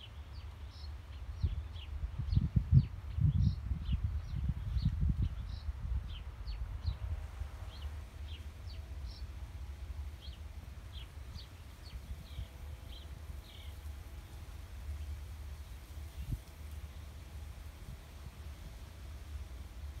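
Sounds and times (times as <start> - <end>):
small birds chirping: 0.0 - 9.3, 10.1 - 14.0
steady low rumble: 0.0 - 20.0.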